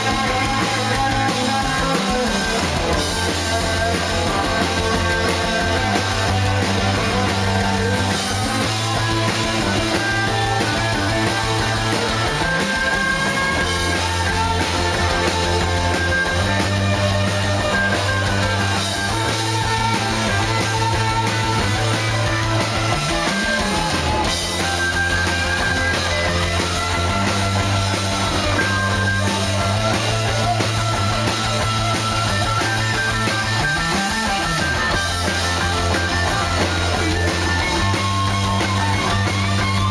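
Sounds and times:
drum kit: 0:00.0 - 0:39.9
electric guitars: 0:00.0 - 0:39.9
repeating bass line: 0:00.0 - 0:39.9.

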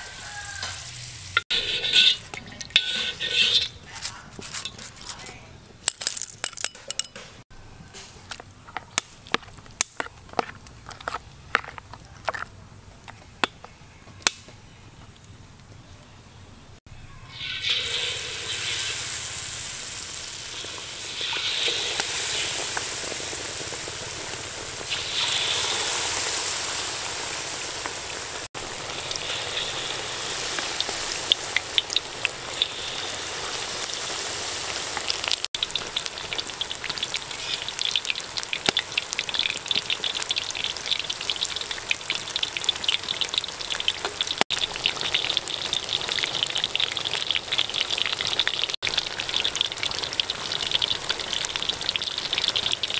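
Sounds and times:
battered meat deep-frying in oil: 0:00.0 - 0:05.2, 0:17.0 - 0:52.9.

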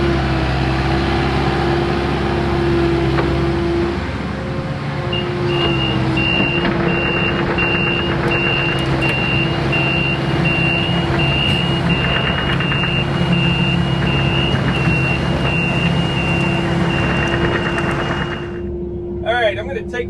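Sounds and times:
excavator diesel engine running: 0:00.0 - 0:20.0
travel alarm beeping: 0:05.1 - 0:19.1.

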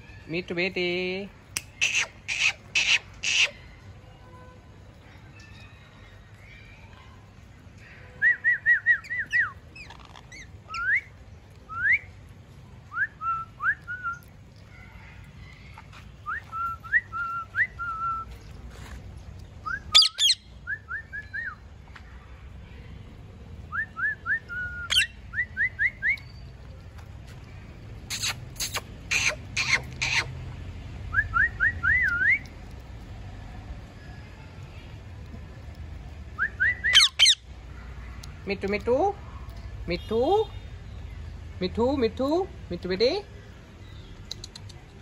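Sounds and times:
parakeets chirping: 0:01.6 - 0:03.6, 0:09.0 - 0:11.0, 0:19.8 - 0:20.6, 0:24.7 - 0:26.6, 0:27.9 - 0:30.6, 0:36.7 - 0:38.8
parakeet harsh screeches: 0:01.8 - 0:03.6, 0:28.1 - 0:30.3, 0:36.9 - 0:37.4.

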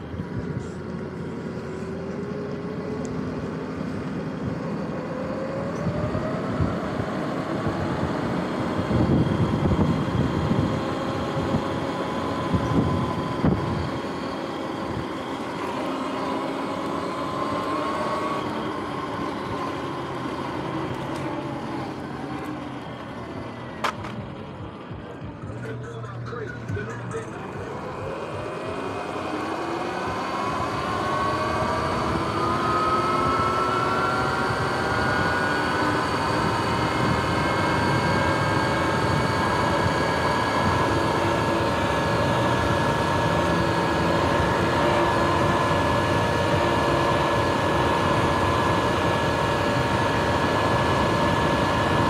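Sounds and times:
electric motorbike motor whining: 0:00.0 - 0:52.0
wind rumbling on microphone: 0:05.7 - 0:14.0.

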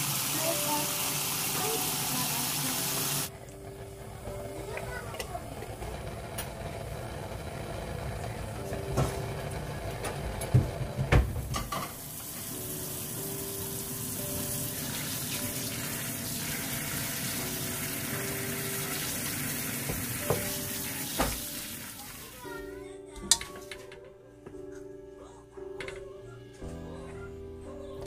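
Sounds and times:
tap water running into sink: 0:00.0 - 0:03.6, 0:10.4 - 0:22.4.

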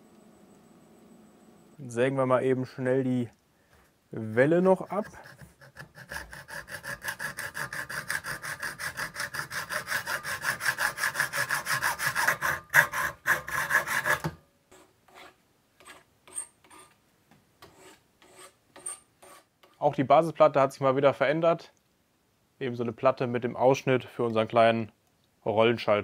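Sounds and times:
hacksaw cutting metal: 0:04.9 - 0:16.9, 0:17.6 - 0:19.8.

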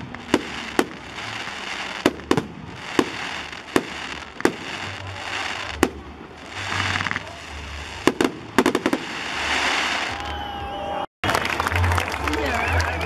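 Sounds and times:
crackling burning sparks: 0:00.0 - 0:10.3.

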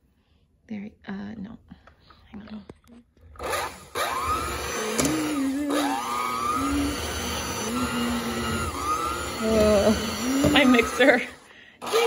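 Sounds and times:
electric hand mixer whining: 0:03.4 - 0:12.0
person talking: 0:09.3 - 0:11.4.

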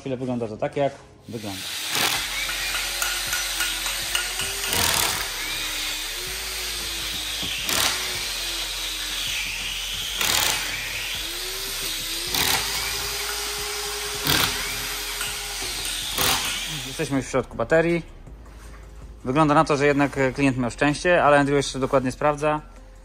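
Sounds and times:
background music: 0:00.0 - 0:23.0
tool noise bursts: 0:01.3 - 0:17.2.

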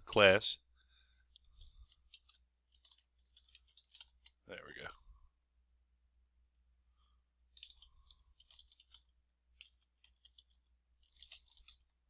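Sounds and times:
faint keyboard typing: 0:01.2 - 0:05.1, 0:07.5 - 0:12.0.

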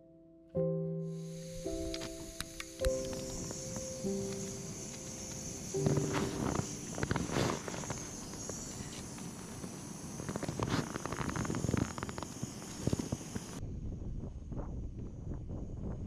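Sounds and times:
gas stove burner hissing: 0:01.2 - 0:13.6.

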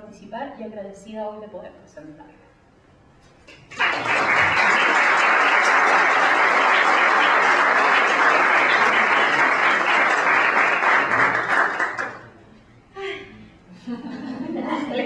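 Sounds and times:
audience applauding: 0:03.6 - 0:12.3.

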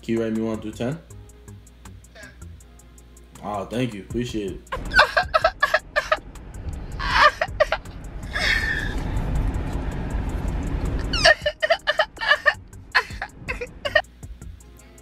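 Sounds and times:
man laughing loudly: 0:04.7 - 0:06.2, 0:07.0 - 0:09.0, 0:11.0 - 0:14.0.

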